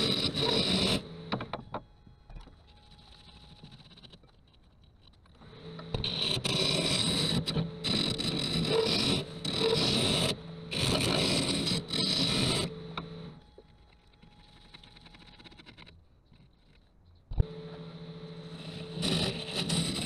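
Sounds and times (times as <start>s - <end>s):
lathe tool scraping wood: 0.0s - 1.4s, 5.6s - 13.3s, 18.1s - 20.0s.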